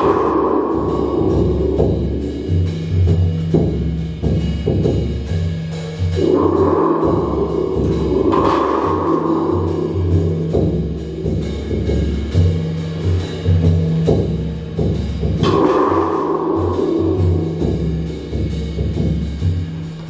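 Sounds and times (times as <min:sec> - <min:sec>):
deep drum struck with mallet: 0:06.2 - 0:12.7, 0:13.4 - 0:19.2.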